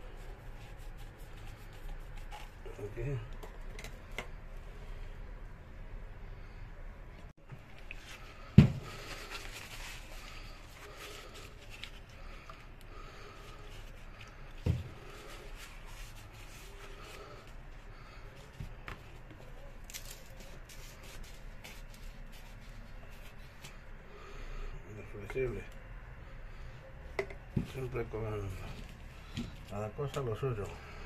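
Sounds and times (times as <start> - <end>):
paper rubbing pipe: 0.0 - 2.9, 7.9 - 18.5, 19.5 - 23.8.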